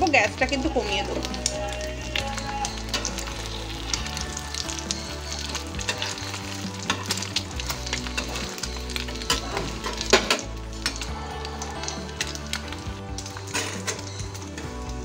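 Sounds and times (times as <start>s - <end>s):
frying sizzle: 0.0s - 15.0s.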